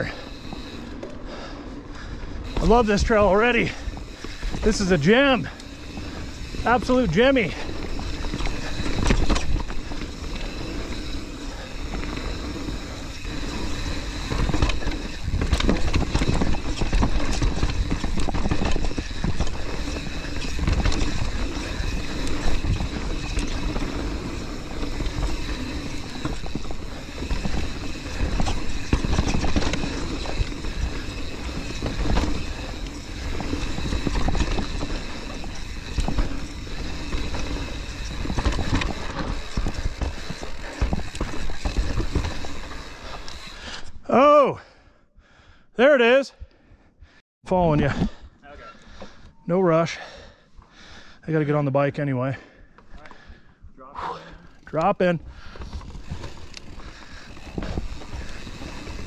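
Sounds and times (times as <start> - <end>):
bike clattering over rocky trail: 2.4 - 43.6, 54.4 - 59.0.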